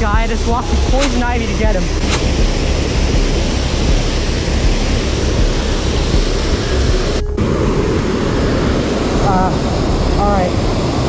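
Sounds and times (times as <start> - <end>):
water rushing over dam: 0.0 - 11.0.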